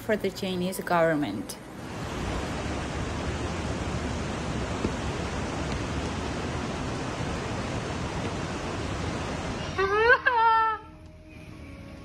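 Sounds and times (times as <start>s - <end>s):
floodwater rushing: 1.8s - 9.8s.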